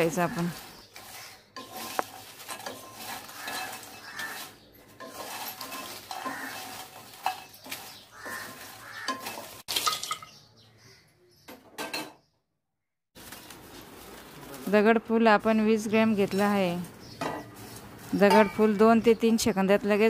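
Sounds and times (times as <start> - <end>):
spatula stirring bark in a wok: 0.0 - 9.9, 15.8 - 20.0.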